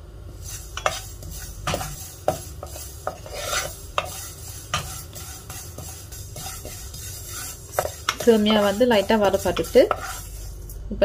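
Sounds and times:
spatula scraping noodles in pan: 0:00.4 - 0:10.7
spatula knocking on pan: 0:01.6 - 0:03.3, 0:04.0 - 0:10.2.

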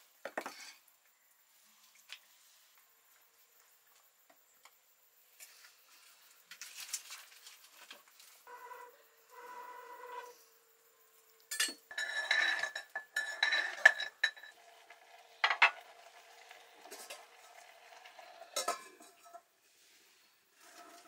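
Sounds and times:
metal lid clanking on pot: 0:11.5 - 0:14.7, 0:15.4 - 0:16.1, 0:18.5 - 0:19.4
metal ladle scraping a pot: 0:11.5 - 0:20.0, 0:20.6 - 0:21.0.

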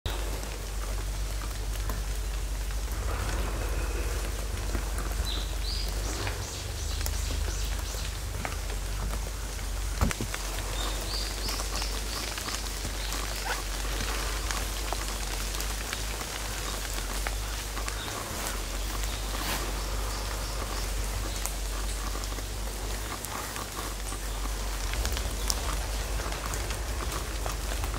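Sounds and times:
rain on foliage: 0:00.0 - 0:27.9.

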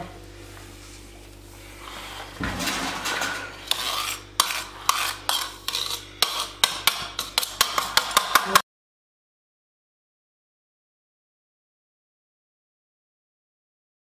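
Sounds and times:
spoon scraping metal tray: 0:01.8 - 0:08.6.

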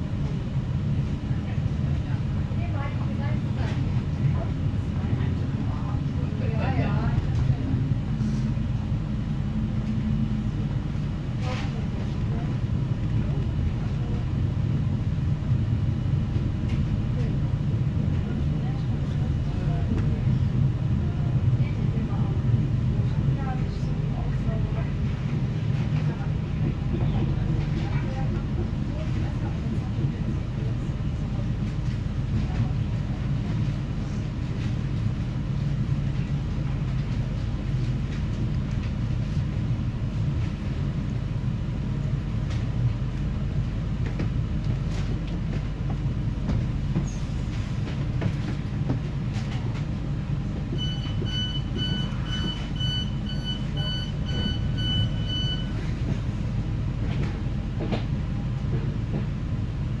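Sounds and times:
train rumbling on rails: 0:00.0 - 1:00.0
short high beeps: 0:50.8 - 0:55.8.

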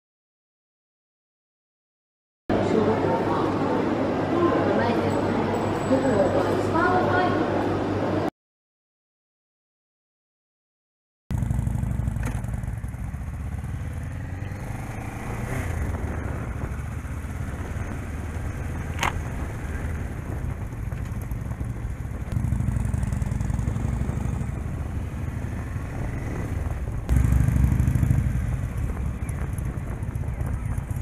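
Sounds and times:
motorcycle engine running: 0:11.3 - 0:31.0
wind noise: 0:14.7 - 0:22.4, 0:23.4 - 0:31.0.

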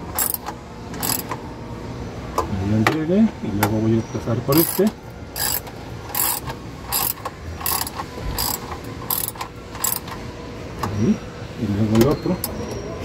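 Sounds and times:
ratchet wrench clicking: 0:00.1 - 0:01.4, 0:04.5 - 0:10.2.

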